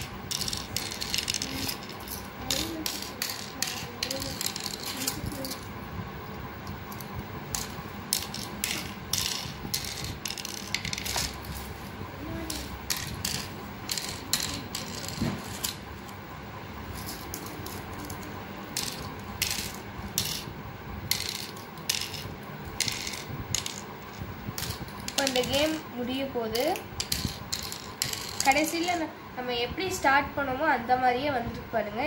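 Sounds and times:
shells clicking into board cups: 0.0s - 5.6s, 6.7s - 11.4s, 12.5s - 16.2s, 17.0s - 20.5s, 21.1s - 23.9s, 26.6s - 28.8s.

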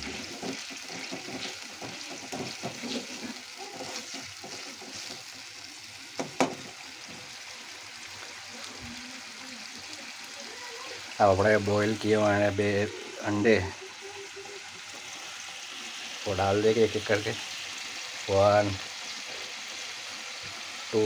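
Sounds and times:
steel spoon scraping pan: 0.0s - 5.3s
masala frying in a pan: 0.0s - 21.0s.

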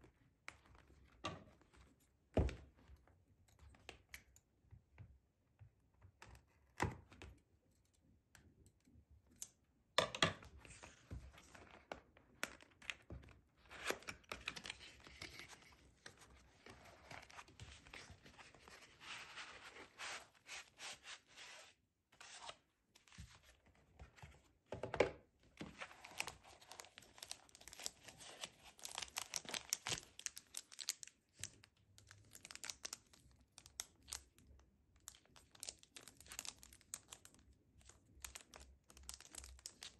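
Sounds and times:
plastic packaging crinkling: 25.9s - 34.2s, 38.2s - 39.9s.

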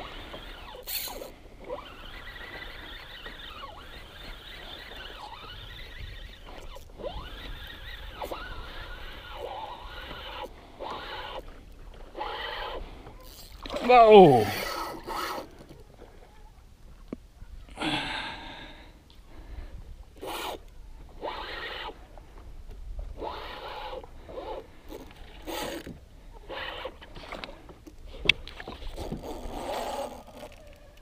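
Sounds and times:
fishing reel cranking: 0.0s - 15.7s, 20.2s - 22.0s, 23.1s - 27.5s, 28.6s - 31.0s.

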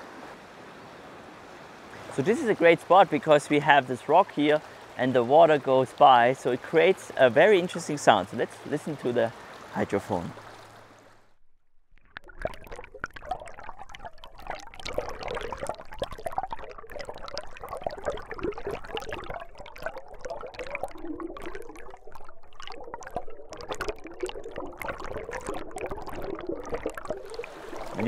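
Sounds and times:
underwater water rush: 1.9s - 28.0s
small underwater clicks and pops: 10.6s - 28.0s.

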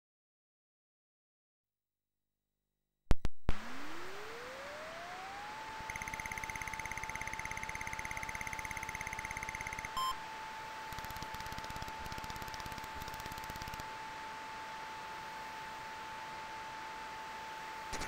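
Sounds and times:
rising electronic tone: 3.5s - 10.4s
rapid pulsing buzz: 3.5s - 14.2s
sharp electronic clicks: 5.8s - 10.2s, 10.9s - 13.9s
short beep: 5.9s - 10.2s.

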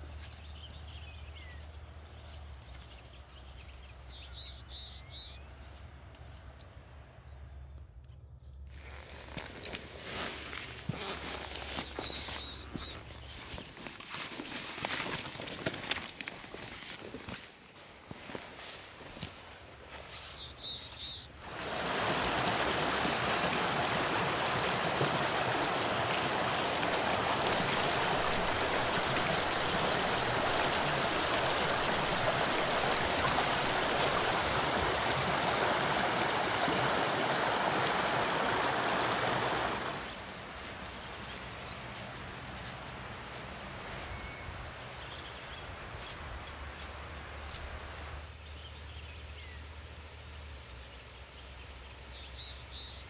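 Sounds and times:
creek water rushing and splashing: 20.3s - 44.0s.

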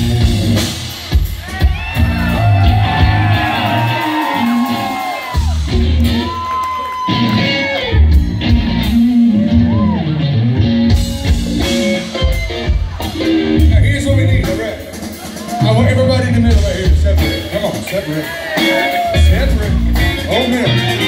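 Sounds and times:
live rock band playing: 0.0s - 21.0s
person singing and shouting: 13.1s - 21.0s.

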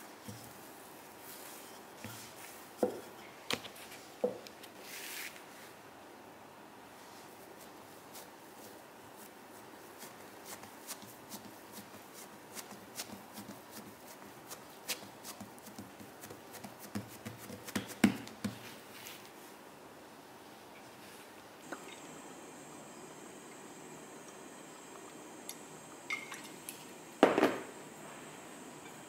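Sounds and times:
hands kneading bread dough: 7.0s - 19.6s.

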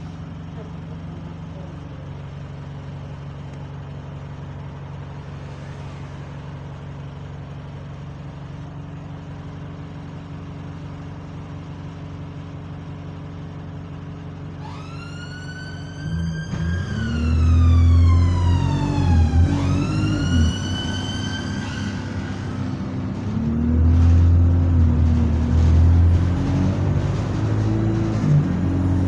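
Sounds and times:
bus engine humming: 0.0s - 29.0s
siren wailing: 14.6s - 23.1s.

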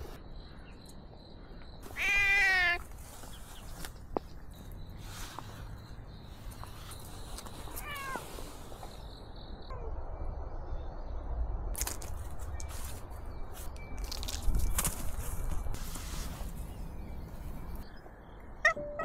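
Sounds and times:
cat meowing: 1.9s - 2.8s, 7.8s - 8.2s.

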